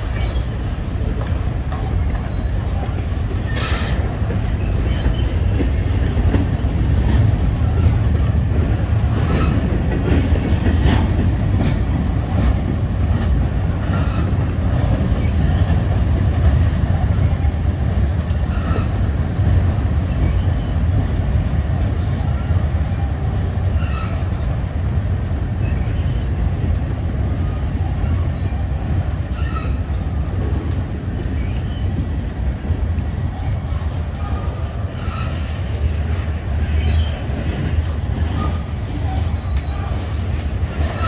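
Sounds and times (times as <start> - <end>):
freight train rumbling on rails: 0.0 - 41.0
wheel squeals and clicks: 4.6 - 5.4, 36.8 - 37.5, 39.2 - 41.0.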